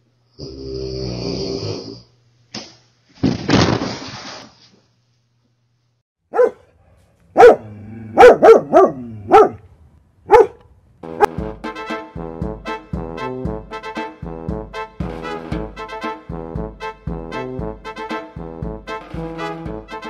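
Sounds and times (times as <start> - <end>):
dog barking: 6.3 - 9.6, 10.3 - 10.6.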